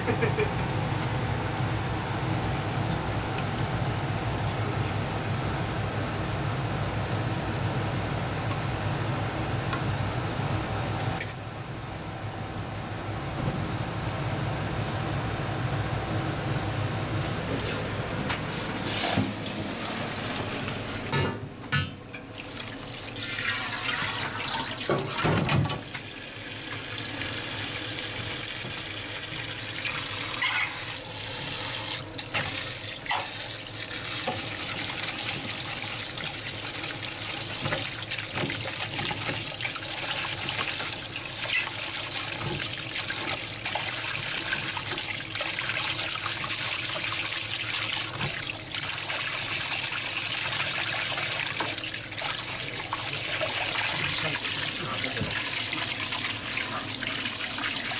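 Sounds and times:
tap water splashing: 34.1s - 36.5s, 37.4s - 49.9s, 50.5s - 57.9s.

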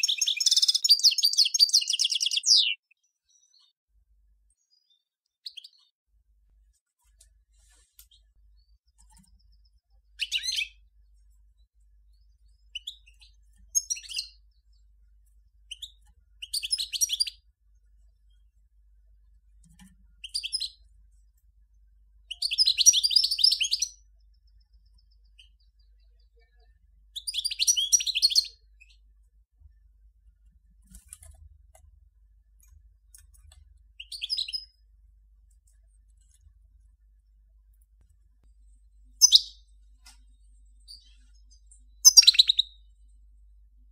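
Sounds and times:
goldfinch twittering song: 0.0s - 3.8s, 4.6s - 5.9s, 8.1s - 10.9s, 12.1s - 14.9s, 15.6s - 17.4s, 20.2s - 20.9s, 22.2s - 29.1s, 34.0s - 34.8s, 39.2s - 39.7s, 40.8s - 42.9s.

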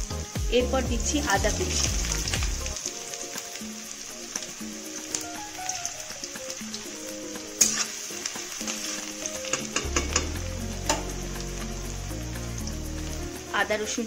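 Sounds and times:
garlic sizzling in oil: 0.0s - 14.0s
spatula stirring in wok: 4.0s - 11.7s.

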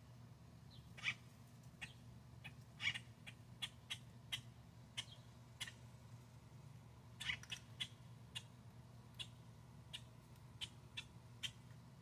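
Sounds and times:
grackles chuck calls: 7.2s - 8.6s.

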